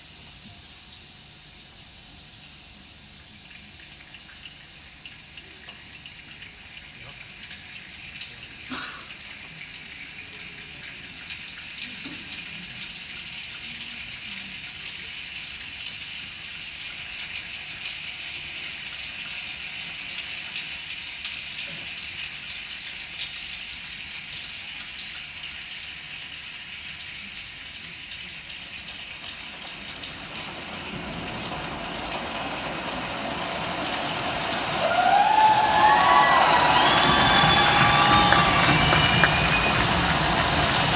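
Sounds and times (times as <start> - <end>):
choir making rain-like hiss: 0.0 - 4.0, 8.3 - 40.9.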